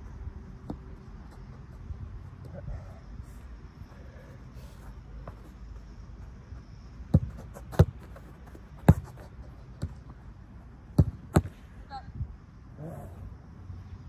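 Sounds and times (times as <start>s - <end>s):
football kicked with thuds: 7.1s - 10.0s, 11.0s - 11.6s.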